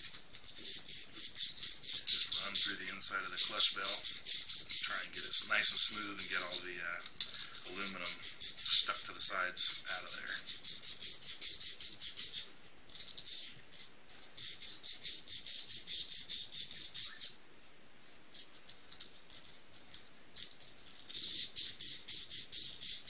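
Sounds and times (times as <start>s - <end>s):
sandpaper rubbing on metal: 0.1s - 6.8s, 7.6s - 13.6s, 14.4s - 17.3s, 20.4s - 23.0s.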